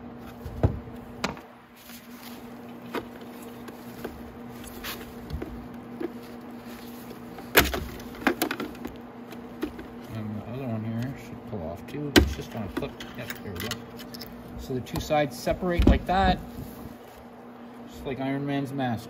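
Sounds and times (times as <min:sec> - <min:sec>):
steady low hum: 0:00.0 - 0:19.0
plastic parts clicking and knocking: 0:07.4 - 0:09.0.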